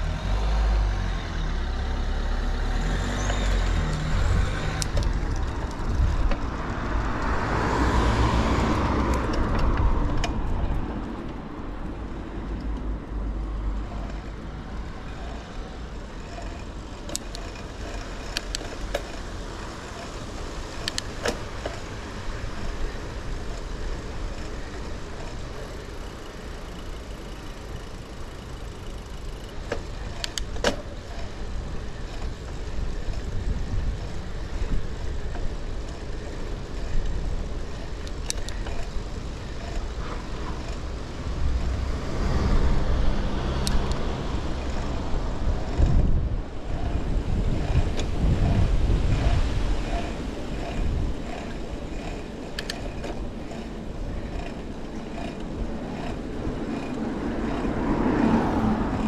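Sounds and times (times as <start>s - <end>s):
vehicle passing: 0.0s - 30.4s, 31.0s - 59.0s
traffic hum: 0.0s - 59.0s
sharp clicks: 16.4s - 19.3s, 20.8s - 21.9s, 29.5s - 31.3s, 37.0s - 39.0s, 43.5s - 46.1s, 47.6s - 59.0s.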